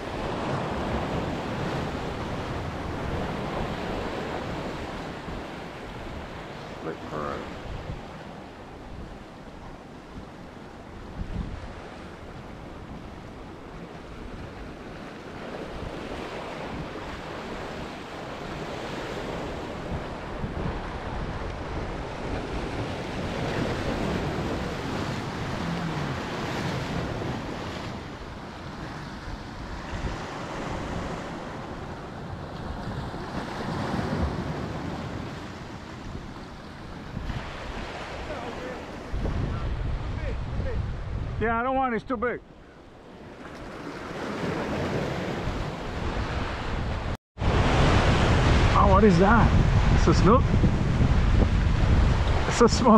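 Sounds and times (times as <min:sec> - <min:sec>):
wind buffeting microphone: 0:07.6 - 0:41.7, 0:42.7 - 0:52.9
surf breaking on rocks: 0:14.6 - 0:31.7, 0:47.4 - 0:52.9.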